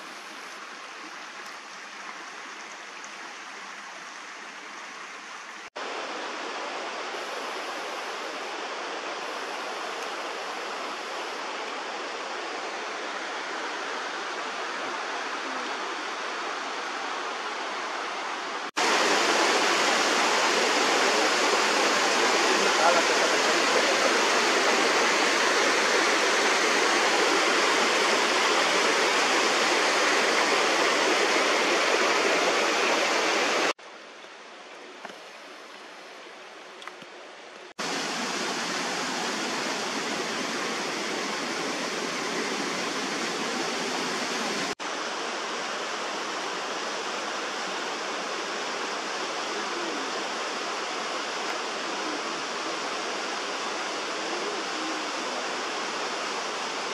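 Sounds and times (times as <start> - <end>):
creek rushing over rocks: 0.0 - 56.9
waterfall pouring: 18.8 - 33.8.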